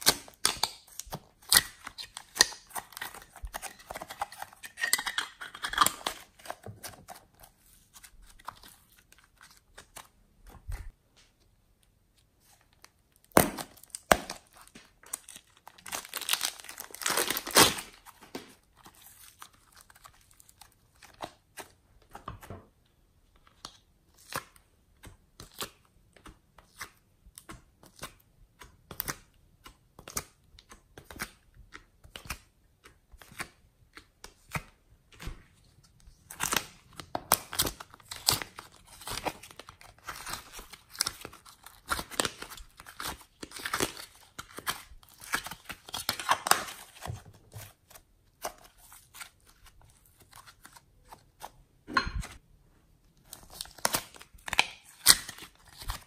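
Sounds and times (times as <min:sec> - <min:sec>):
sticky clay clicks and crackles: 0:23.3 - 0:51.6.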